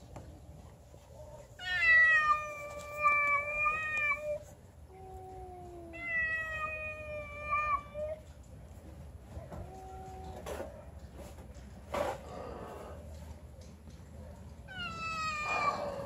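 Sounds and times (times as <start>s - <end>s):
cats yowling: 1.6s - 8.2s, 14.7s - 16.0s.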